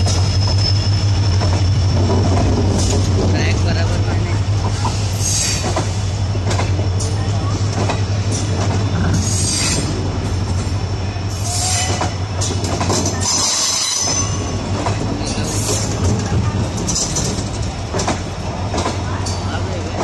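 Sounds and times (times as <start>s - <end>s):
train wheels clattering over rails: 0.0s - 20.0s
high-pitched wheel squeal: 9.1s - 10.0s, 11.3s - 12.2s, 13.2s - 14.5s.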